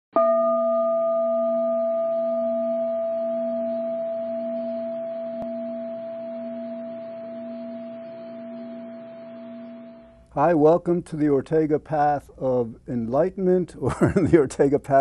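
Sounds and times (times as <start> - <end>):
struck bell-like metal tone: 0.2 - 10.2.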